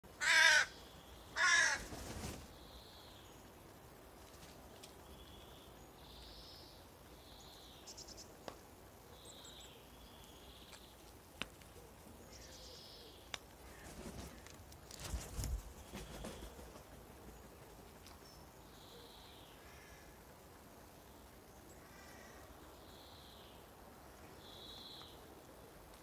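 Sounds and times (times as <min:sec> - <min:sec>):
raven calling loudly: 0:00.1 - 0:02.0
faint sharp clicks: 0:13.3 - 0:13.6.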